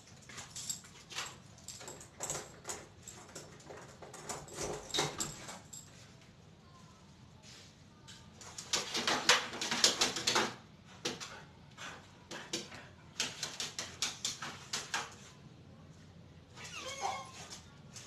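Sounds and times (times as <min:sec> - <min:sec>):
dog claws clicking on concrete: 0:12.5 - 0:15.2.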